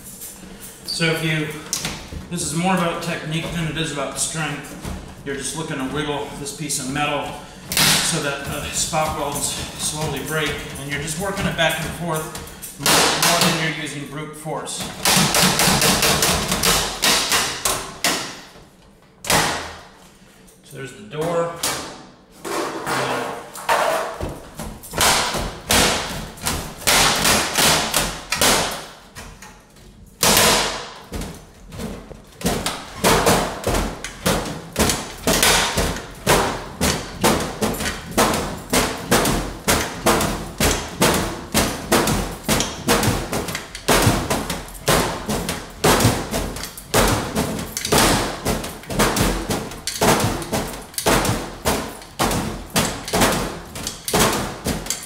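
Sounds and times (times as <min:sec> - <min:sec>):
sheet metal banging and clanking: 0:21.6 - 0:29.4, 0:30.1 - 0:55.0.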